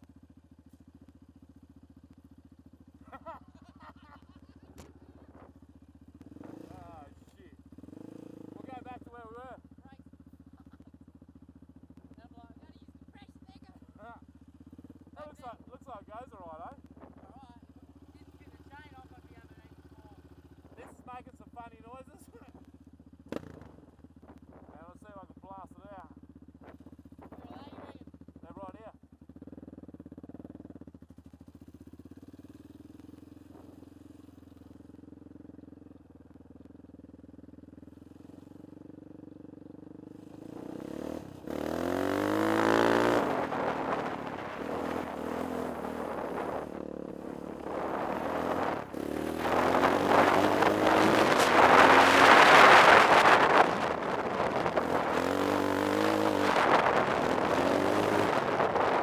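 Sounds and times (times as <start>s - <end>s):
quad engine idling and revving: 0.0s - 59.0s
wind noise: 41.9s - 59.0s.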